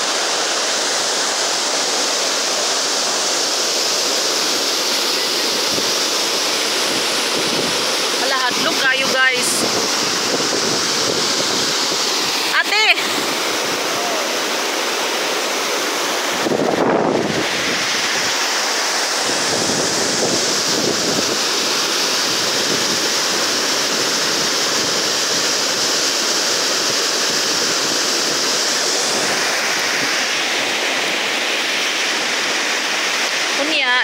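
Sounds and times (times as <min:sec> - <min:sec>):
waterfall rushing: 0:00.0 - 0:34.0.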